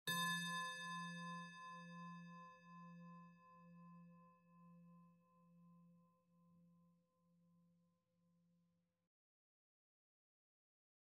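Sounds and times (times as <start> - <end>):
singing bowl ringing: 0.1 - 4.1.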